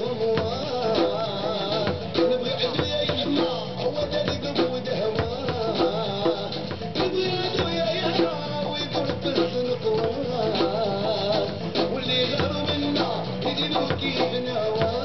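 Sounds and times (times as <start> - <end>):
drums beating quick rhythm: 0.0 - 15.0
person singing: 0.0 - 15.0
rattling percussion: 0.0 - 15.0.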